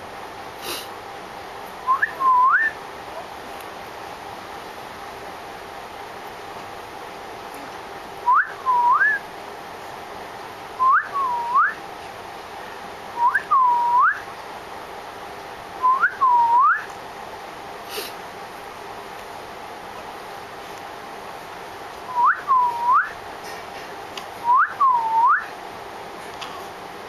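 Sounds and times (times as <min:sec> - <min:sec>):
person whistling a call: 0:01.9 - 0:02.8, 0:08.3 - 0:09.2, 0:24.4 - 0:25.5.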